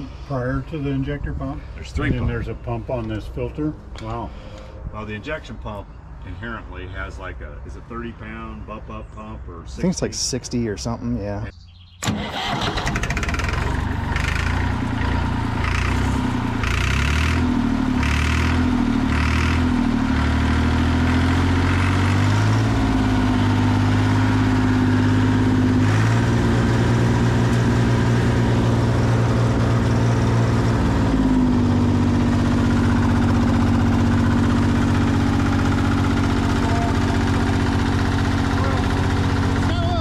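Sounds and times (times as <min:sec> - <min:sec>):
tractor diesel engine running: 0:12.0 - 0:40.0.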